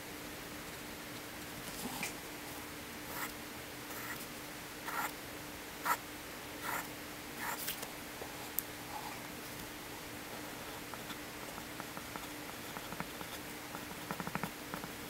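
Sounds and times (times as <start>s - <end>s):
pencil scratching on paper: 3.1s - 3.3s, 3.9s - 4.2s, 4.9s - 5.1s, 6.6s - 7.6s.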